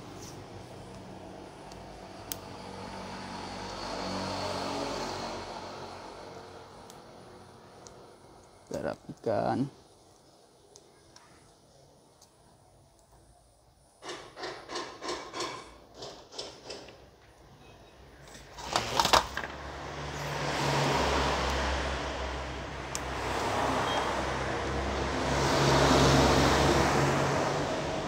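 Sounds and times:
sharp knocks: 14.0 - 16.9.

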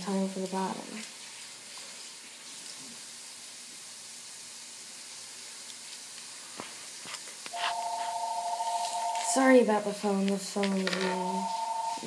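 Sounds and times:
faint steady hiss: 0.0 - 12.0
phone ringing: 7.5 - 9.6, 10.8 - 12.0.

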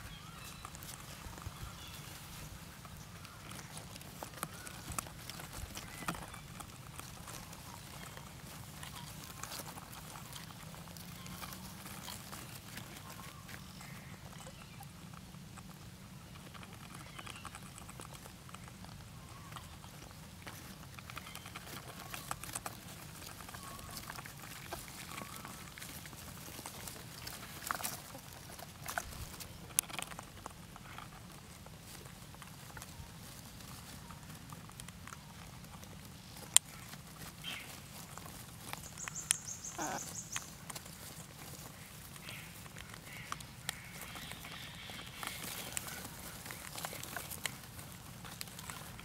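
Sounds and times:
birds scratching on dry grass: 0.0 - 49.0
high-pitched bird calls: 38.8 - 40.6.

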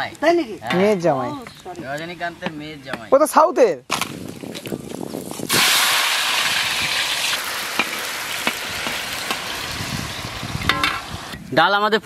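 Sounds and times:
potato sizzling in hot oil: 5.3 - 11.4.

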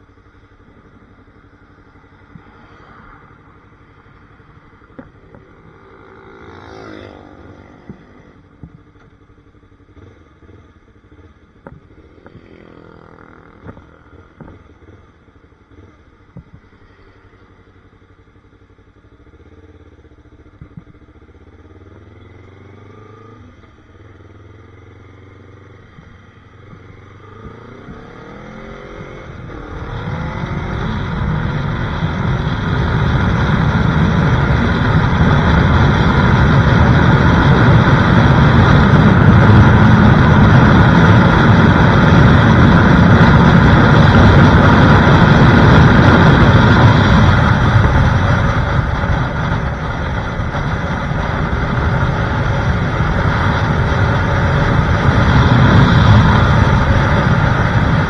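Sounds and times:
motorcycle engine accelerating: 0.0 - 58.0
wind rushing on microphone: 29.0 - 58.0.

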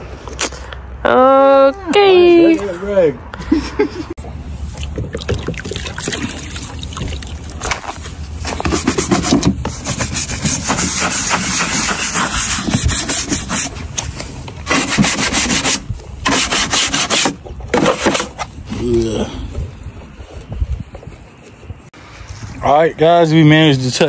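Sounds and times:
sponge scrubbing wet plastic: 4.6 - 13.8, 14.6 - 18.3.

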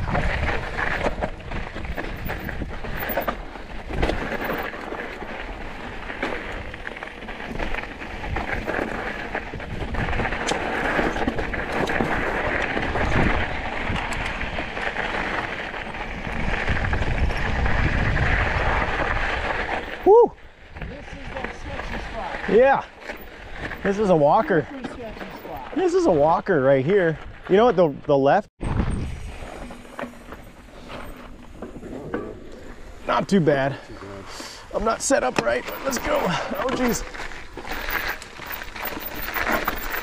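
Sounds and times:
wind rumbling on microphone: 0.0 - 22.5, 28.6 - 33.1
bike rattling over bumps: 0.0 - 27.9, 28.6 - 40.0
bike tyres crunching on gravel: 0.0 - 40.0.

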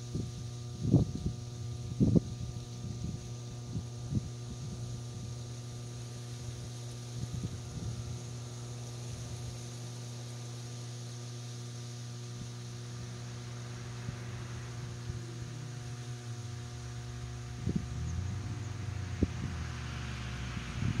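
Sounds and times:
low hum: 0.0 - 21.0
low rumble: 12.4 - 21.0.

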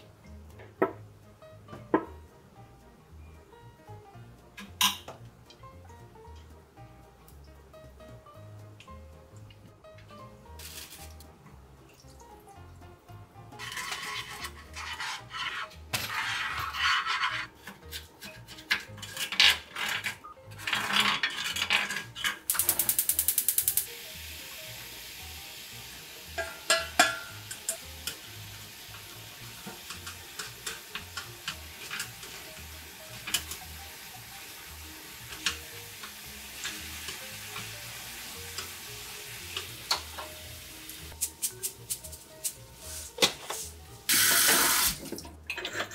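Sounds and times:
low sizzle: 0.0 - 45.9
spoon stirring sauce in pan: 13.6 - 19.3
chopsticks clicking on pan: 22.5 - 23.9.

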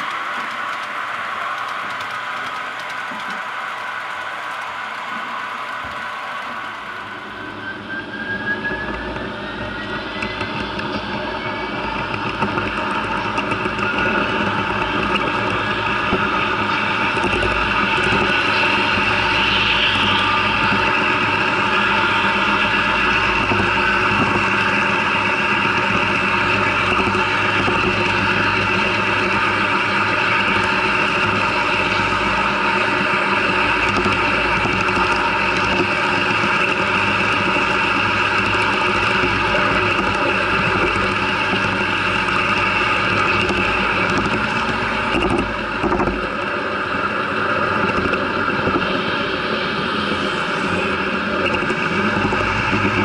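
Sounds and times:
model train motor whirring: 0.0 - 7.5
wheels rolling on rails: 0.0 - 53.0
motor hum: 8.6 - 53.0.

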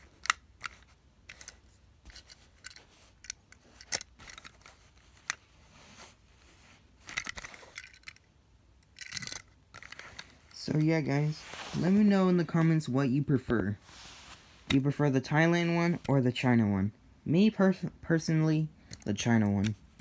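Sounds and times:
toy cars clicking on cloth: 0.0 - 5.5, 7.0 - 10.5.

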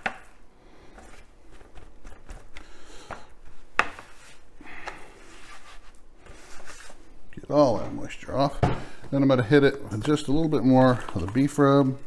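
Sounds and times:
paper towel rustling: 3.4 - 8.2.

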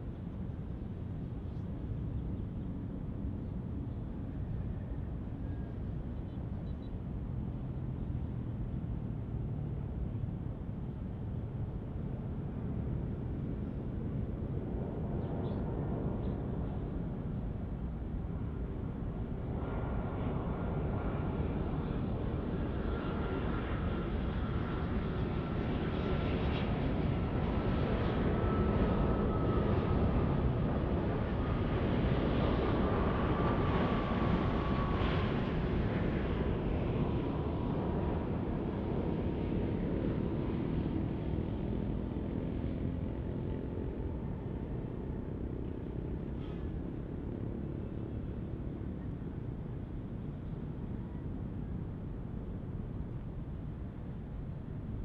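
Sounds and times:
jet airliner passing: 12.6 - 55.0.

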